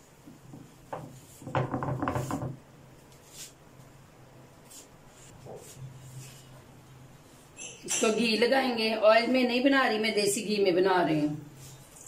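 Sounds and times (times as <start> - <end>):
hands patting dough on griddle: 0.3 - 2.6.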